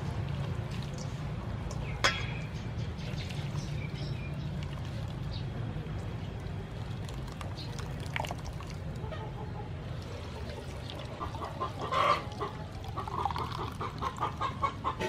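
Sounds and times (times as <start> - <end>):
liquid pouring through strainer: 6.6 - 9.0
hen clucking: 9.0 - 15.0.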